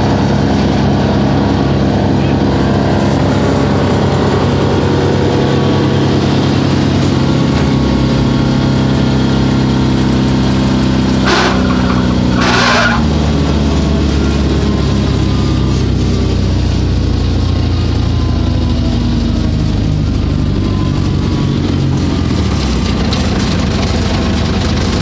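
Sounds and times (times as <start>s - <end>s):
wood chipper engine running: 0.0s - 25.0s
short noisy bursts: 11.2s - 13.2s.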